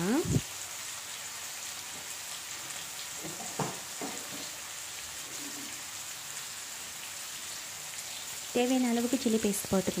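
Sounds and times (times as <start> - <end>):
vegetables sizzling in a pan: 0.0 - 10.0
light knocks: 3.2 - 4.5.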